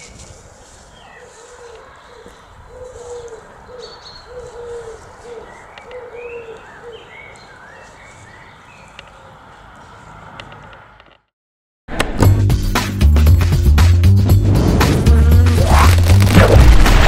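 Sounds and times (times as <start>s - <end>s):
small birds chirping: 0.0s - 10.6s
dove cooing: 1.1s - 7.3s.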